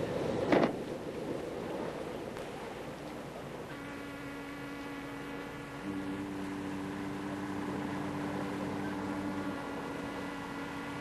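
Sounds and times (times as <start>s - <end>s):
sustained synthesizer chord: 3.7s - 11.0s.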